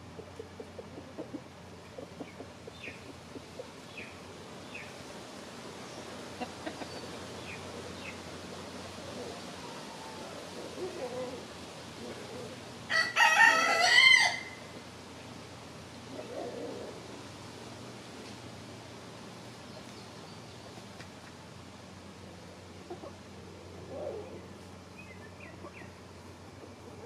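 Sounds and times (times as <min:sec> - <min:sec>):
chickens clucking: 0:00.0 - 0:04.9, 0:05.9 - 0:11.4, 0:22.7 - 0:27.0
rooster crowing: 0:12.9 - 0:14.7.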